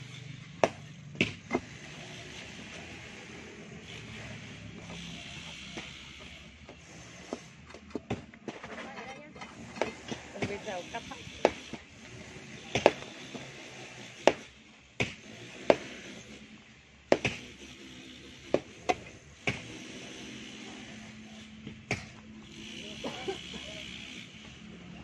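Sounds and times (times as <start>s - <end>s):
shovels striking stony soil: 12.5s - 16.3s.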